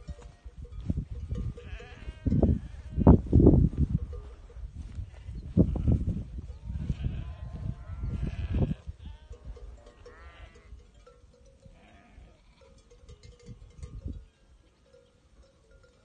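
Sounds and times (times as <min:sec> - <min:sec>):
sheep bleating: 0:01.6 - 0:03.2, 0:05.1 - 0:10.7, 0:11.8 - 0:12.8.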